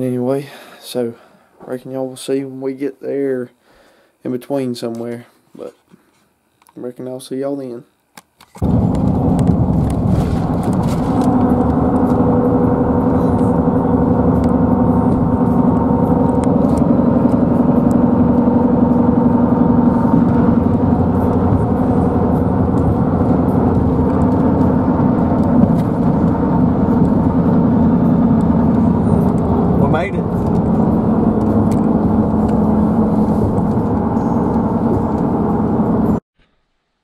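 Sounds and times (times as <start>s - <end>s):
low hum: 8.6s - 36.2s
truck road and engine drone: 8.6s - 36.2s.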